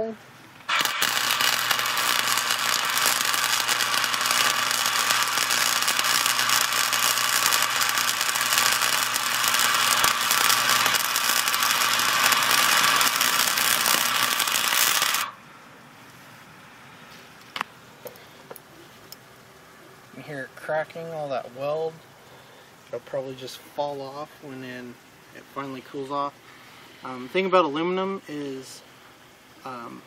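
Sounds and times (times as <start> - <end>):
welding arc crackling: 0.0 - 15.4.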